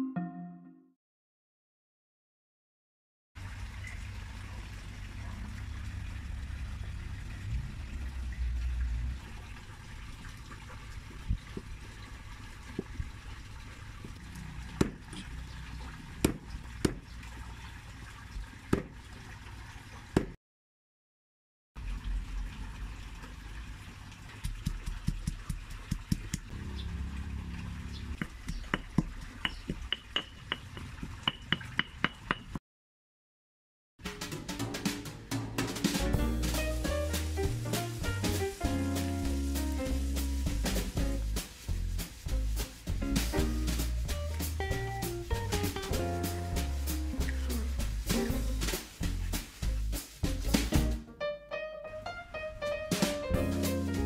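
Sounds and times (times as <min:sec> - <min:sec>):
low rumble with hiss: 0:03.4 - 0:16.7, 0:26.5 - 0:28.2, 0:36.0 - 0:51.0
cleaver knocking on chopping board: 0:14.8 - 0:15.0, 0:16.2 - 0:17.0, 0:28.2 - 0:30.6
stone pestle pounding in mortar: 0:14.8 - 0:15.1, 0:16.2 - 0:17.0, 0:24.4 - 0:26.5, 0:28.2 - 0:32.5.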